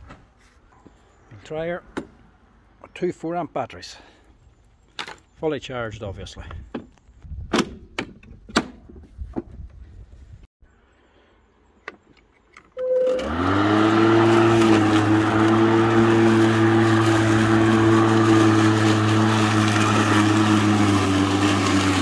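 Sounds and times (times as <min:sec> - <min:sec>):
lawn mower motor humming: 0:12.8 - 0:22.0.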